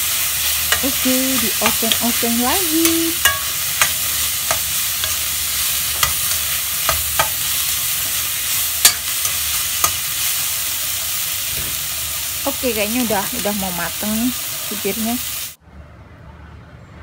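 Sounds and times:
spatula clinking and scraping pan: 0.0s - 10.7s
beans sizzling in a wok: 0.0s - 15.6s.

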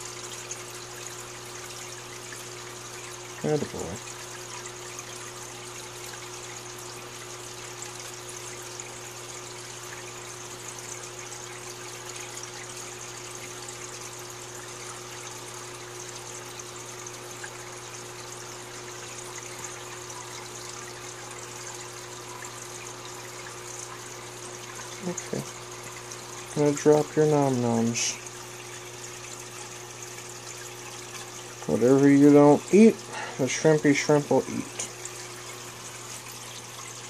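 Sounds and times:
water trickling: 0.0s - 37.0s.

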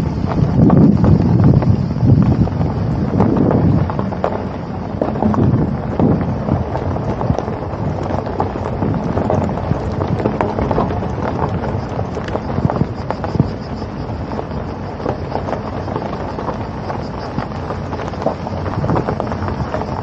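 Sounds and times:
vehicle travel noise: 0.0s - 20.0s
wind buffeting microphone: 0.0s - 20.0s.

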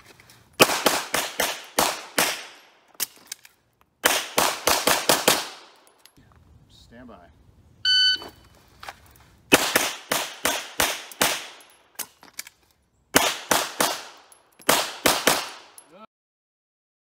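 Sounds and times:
handgun shots: 4.0s - 5.8s, 9.5s - 12.1s, 13.2s - 15.8s.

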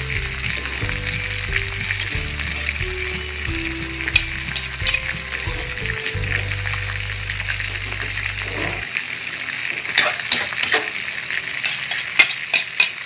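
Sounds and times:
utensils clacking against pan: 0.0s - 7.0s, 9.9s - 11.0s, 11.6s - 13.0s
food sizzling in a wok: 0.0s - 13.0s
metal spatula scraping wok: 7.6s - 8.9s.

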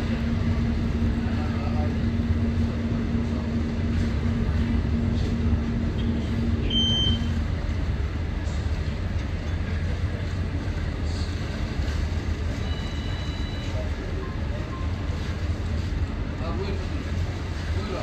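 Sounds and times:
steady hum: 0.0s - 13.1s
ferry engine low rumble: 0.0s - 18.0s
wind: 0.0s - 18.0s.

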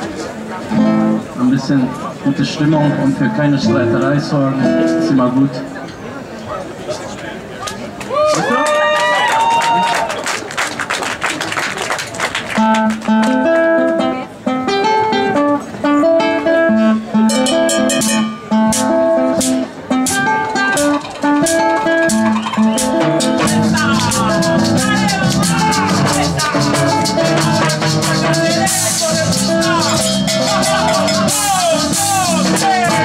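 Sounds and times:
acoustic guitar melody: 0.0s - 6.1s, 12.6s - 33.0s
band accompaniment: 15.4s - 33.0s
shaker percussion: 17.4s - 33.0s.

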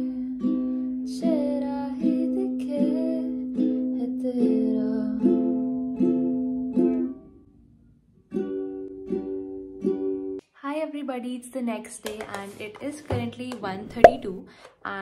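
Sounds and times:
woman singing: 0.0s - 5.6s
ukulele strumming: 0.0s - 7.4s, 8.3s - 10.4s, 13.9s - 14.4s.

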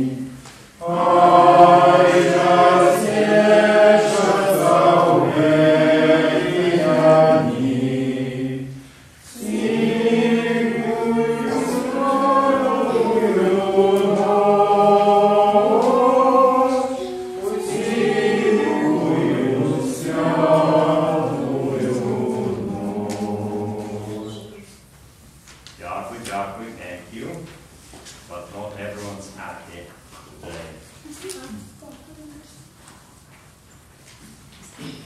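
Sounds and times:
choir singing a carol: 0.0s - 24.8s.

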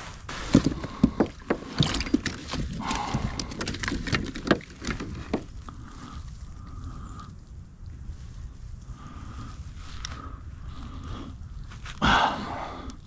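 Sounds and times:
knocks and rattles on kayak: 0.3s - 5.7s.

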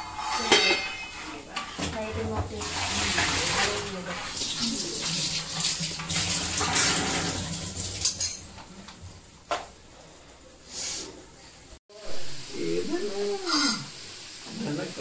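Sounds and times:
pots and pans clinking: 0.0s - 9.7s
tap water running: 1.4s - 10.3s, 12.4s - 15.0s.

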